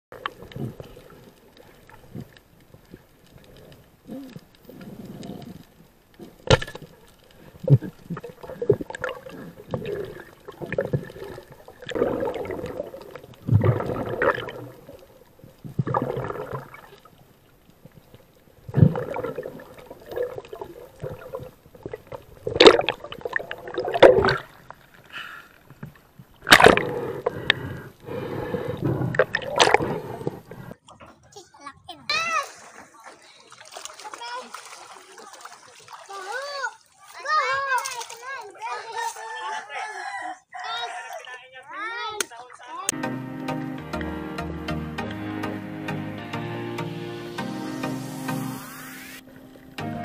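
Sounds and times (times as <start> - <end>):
muffled underwater gurgling: 7.4 - 16.9, 18.7 - 24.6.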